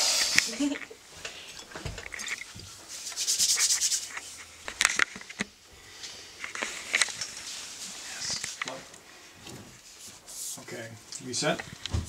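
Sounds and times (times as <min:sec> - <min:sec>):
cloth rubbing against camera: 0:02.2 - 0:04.6, 0:09.7 - 0:10.9.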